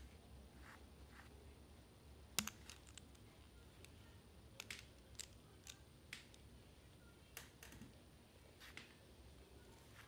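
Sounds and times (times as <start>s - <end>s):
quiet room hum: 0.0s - 10.0s
plastic bricks clicking: 2.4s - 3.2s, 4.6s - 6.4s.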